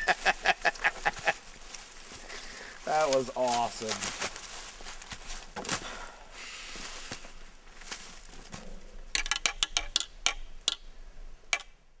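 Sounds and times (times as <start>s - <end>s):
faint rustling: 0.0s - 9.0s.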